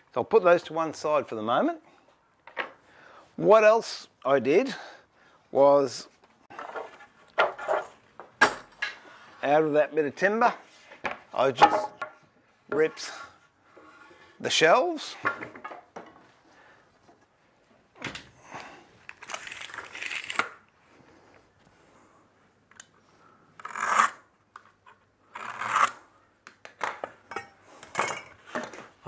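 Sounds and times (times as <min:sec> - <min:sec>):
wood scraping: 0:06.5 - 0:08.0.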